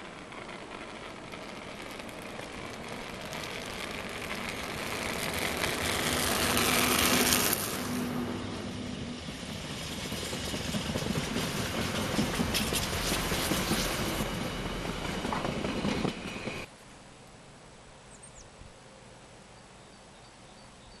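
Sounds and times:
electric locomotive passing: 0:00.0 - 0:16.7.

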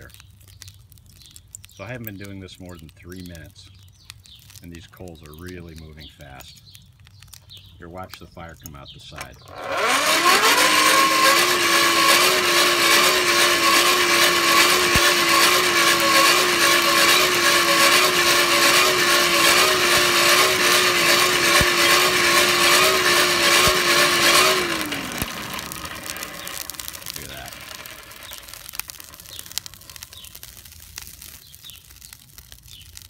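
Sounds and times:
hand-cranked blower whining: 0:09.2 - 0:30.4.

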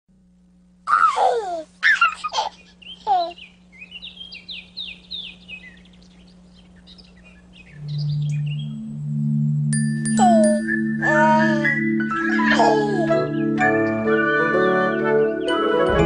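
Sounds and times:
songbird chirping: 0:01.8 - 0:16.0
low musical note: 0:07.8 - 0:12.0.

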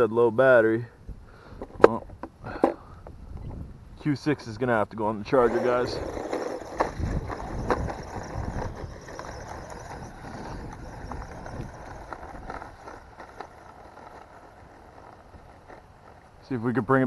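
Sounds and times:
toy truck motor running: 0:05.3 - 0:16.4.

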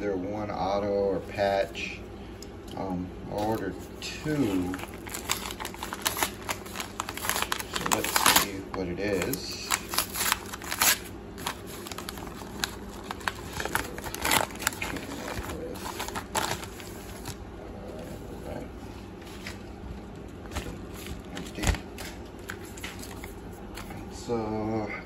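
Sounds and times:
mailers rustling and crinkling: 0:03.3 - 0:17.4, 0:19.2 - 0:24.0.

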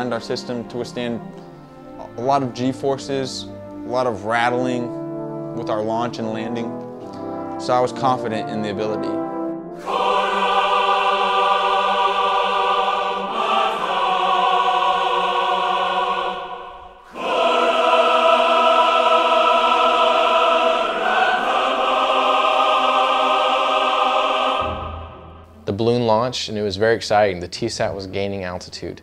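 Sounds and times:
choir singing held chords: 0:09.5 - 0:25.8.

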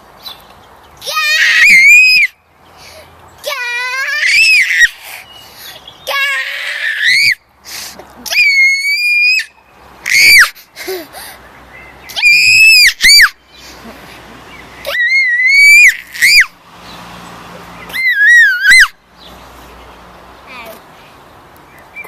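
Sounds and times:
toddler girl squealing: 0:01.0 - 0:02.4, 0:03.4 - 0:05.2, 0:06.0 - 0:07.4, 0:08.2 - 0:10.6, 0:12.1 - 0:13.4, 0:14.8 - 0:16.6, 0:17.9 - 0:19.0.

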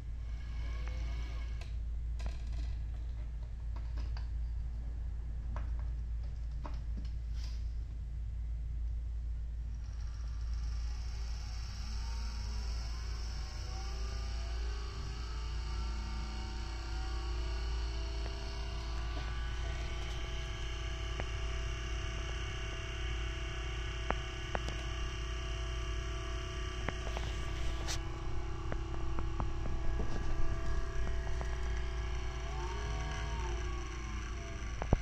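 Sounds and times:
small electric motor running: 0:09.8 - 0:35.0.

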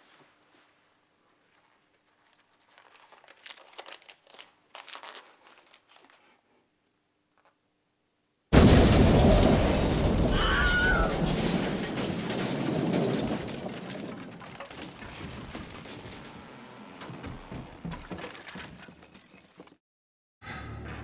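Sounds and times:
explosion blast: 0:08.5 - 0:13.7
debris crackling and clattering: 0:08.6 - 0:19.8.

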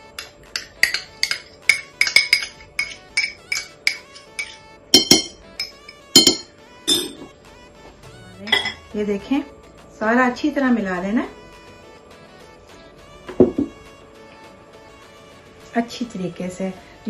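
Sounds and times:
spoon knocking: 0:00.0 - 0:07.3, 0:08.5 - 0:08.9, 0:13.3 - 0:13.8
teaspoon clinking on bowl: 0:00.1 - 0:07.2, 0:08.5 - 0:08.8.

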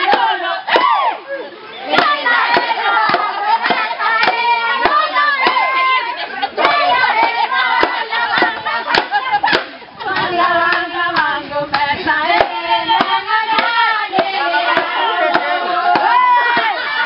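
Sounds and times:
group singing a dance song: 0:00.0 - 0:17.0
hand claps: 0:06.6 - 0:16.7.

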